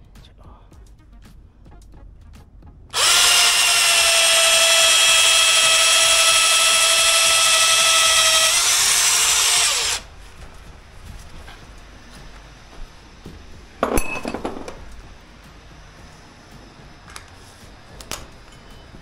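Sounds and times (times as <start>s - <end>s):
electric drill running: 2.9s - 10.1s.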